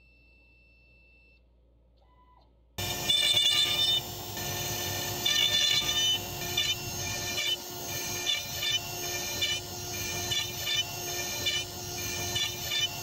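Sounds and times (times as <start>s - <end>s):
router spindle cutting wood: 2.8s - 13.0s.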